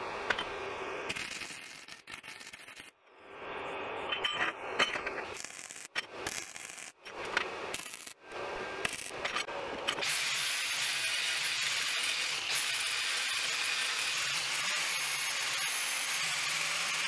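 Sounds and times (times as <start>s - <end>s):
angle grinder grinding metal: 10.0s - 17.0s.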